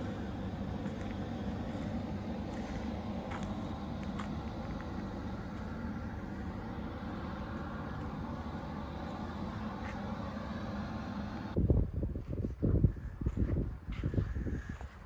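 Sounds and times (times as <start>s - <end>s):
low mechanical hum and rumble: 0.0s - 15.0s
wind buffeting microphone: 10.6s - 15.0s.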